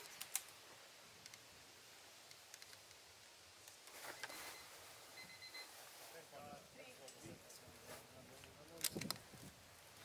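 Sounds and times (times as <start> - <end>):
faint background hiss: 0.0 - 10.0
light clicks: 8.4 - 9.2.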